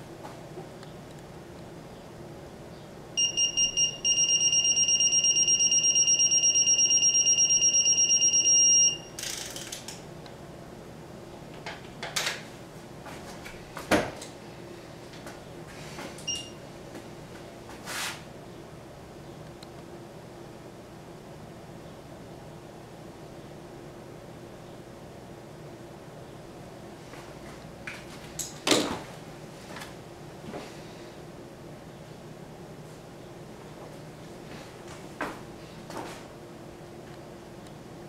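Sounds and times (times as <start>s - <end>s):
torque wrench beeping: 3.2s - 9.3s.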